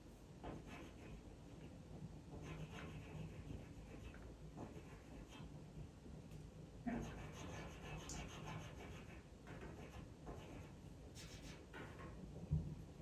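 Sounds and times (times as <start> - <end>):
pencil scratching on paper: 0.5 - 1.2, 2.3 - 5.5, 6.9 - 12.0.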